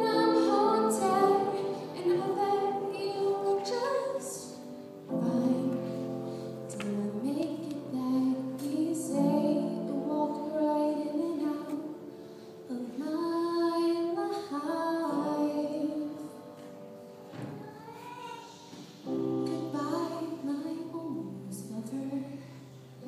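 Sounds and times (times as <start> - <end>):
woman singing into microphone: 0.0 - 6.1, 6.7 - 12.0, 12.7 - 16.3, 19.4 - 22.5.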